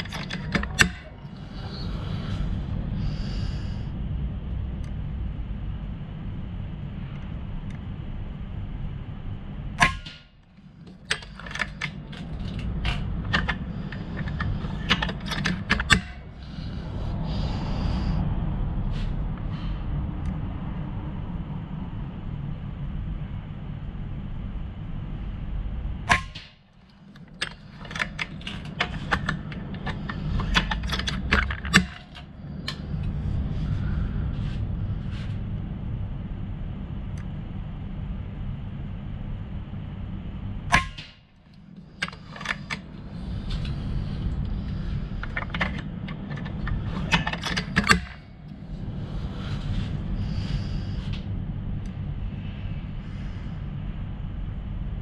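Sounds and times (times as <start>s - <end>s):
small clicks and knocks: 0.0s - 1.5s, 9.8s - 16.3s, 26.1s - 33.2s, 40.7s - 48.3s
low rumble: 0.0s - 9.9s, 10.6s - 26.2s, 27.0s - 40.9s, 41.7s - 55.0s.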